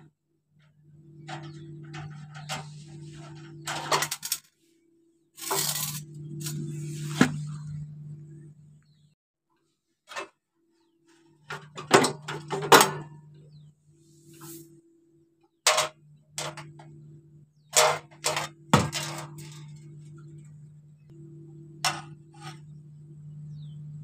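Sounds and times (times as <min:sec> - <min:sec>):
faint hum: 0:00.0 - 0:09.2, 0:10.7 - 0:24.0
metal cover clanking: 0:11.5 - 0:13.1.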